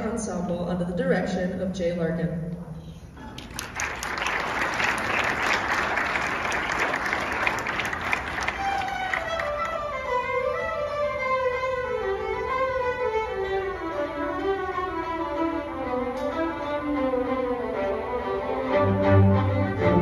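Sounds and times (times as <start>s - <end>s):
string orchestra playing: 8.1s - 20.0s.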